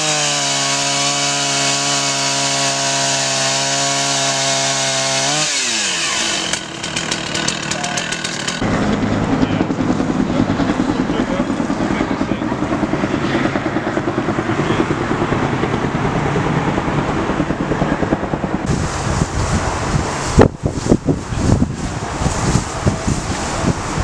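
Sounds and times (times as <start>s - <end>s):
chainsaw: 0.0s - 8.7s
helicopter rotor beating: 0.0s - 24.0s.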